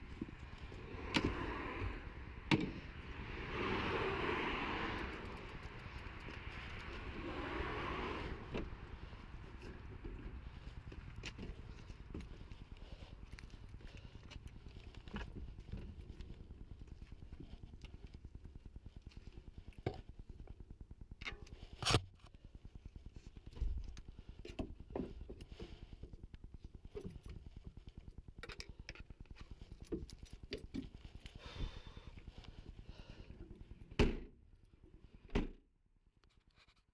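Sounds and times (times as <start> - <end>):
scrapes clicks and light knocks: 21.2 - 31.4.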